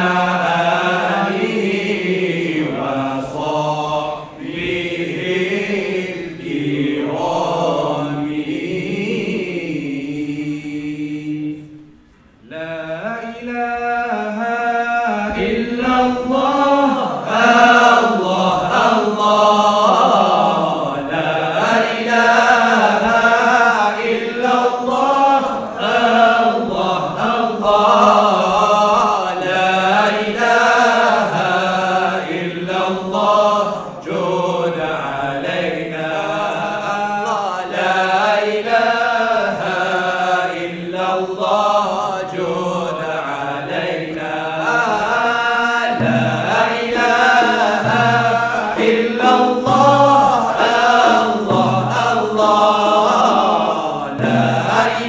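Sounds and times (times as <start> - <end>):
male group chanting in unison: 0.0 - 11.8, 12.4 - 55.0.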